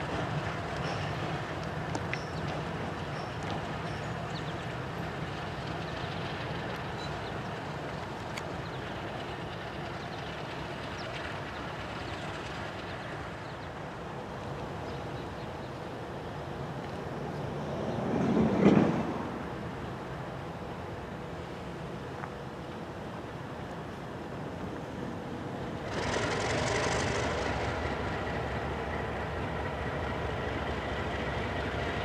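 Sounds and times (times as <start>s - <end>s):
diesel locomotive rumble: 0.0s - 32.0s
rushing noise: 25.2s - 32.0s.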